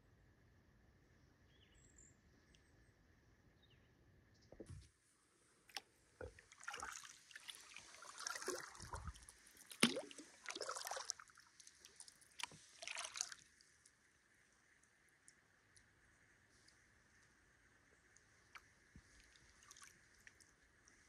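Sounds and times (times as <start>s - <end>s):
water splashing and dripping: 5.7s - 13.6s, 18.1s - 21.0s.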